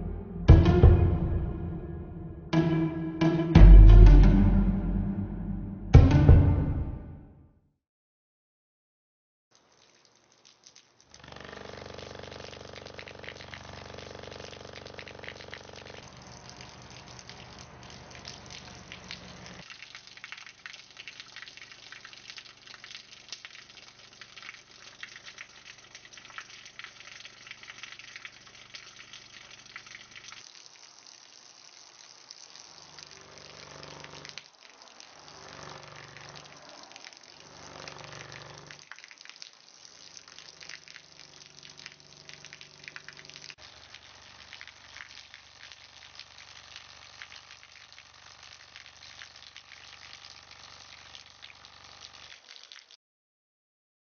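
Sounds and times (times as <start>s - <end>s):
low pulsing sound: 0.0s - 7.2s
water trickling and splashing: 9.5s - 53.0s.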